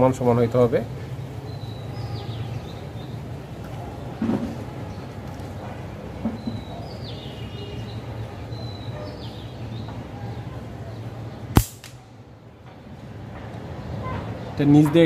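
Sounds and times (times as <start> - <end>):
slingshot band snap: 11.6 - 12.0.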